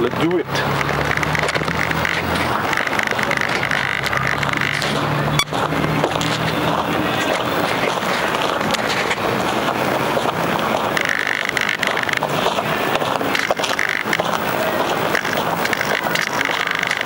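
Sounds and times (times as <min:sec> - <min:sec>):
high motor whine: 0:00.0 - 0:17.0
rough rushing and rattling: 0:00.0 - 0:17.0.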